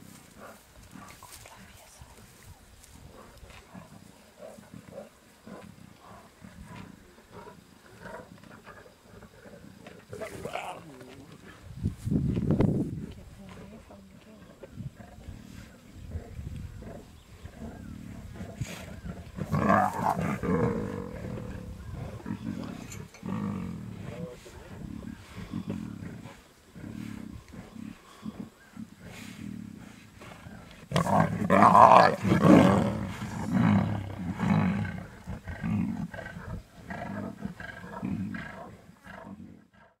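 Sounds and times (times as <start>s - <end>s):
lions growling: 3.0s - 11.7s, 13.7s - 40.0s.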